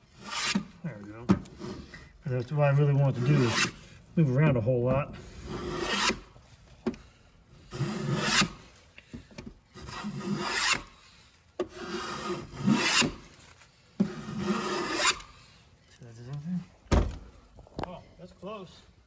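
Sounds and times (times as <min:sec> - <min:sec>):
hand plane shaving wood: 0:00.1 - 0:00.7, 0:03.0 - 0:03.8, 0:05.4 - 0:06.2, 0:07.7 - 0:08.7, 0:09.8 - 0:10.9, 0:11.7 - 0:13.4, 0:14.0 - 0:15.3.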